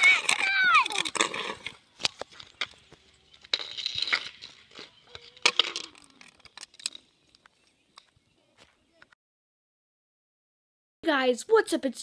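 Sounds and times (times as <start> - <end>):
scraping rush: 0.0 - 1.8
hockey sticks clacking: 0.0 - 8.1.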